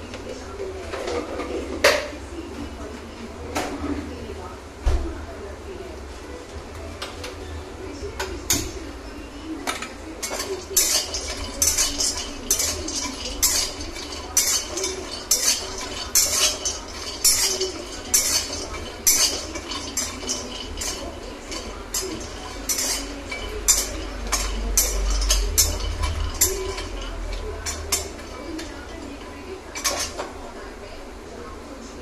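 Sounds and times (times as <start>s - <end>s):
metal spatula scraping metal pan: 10.2s - 30.3s.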